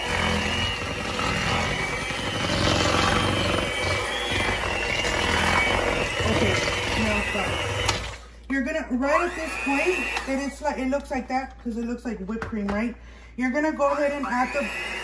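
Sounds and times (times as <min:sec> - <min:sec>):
beaters whipping cream cheese: 0:00.0 - 0:08.1
electric hand mixer whining: 0:00.0 - 0:08.2, 0:09.0 - 0:11.0, 0:13.8 - 0:15.0.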